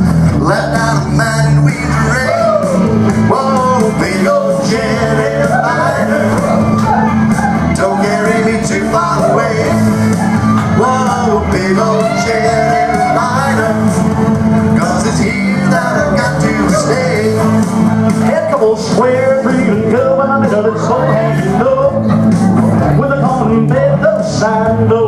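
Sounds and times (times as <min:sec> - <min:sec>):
country-style backing track: 0:00.0 - 0:25.0
people singing into microphones: 0:00.0 - 0:25.0.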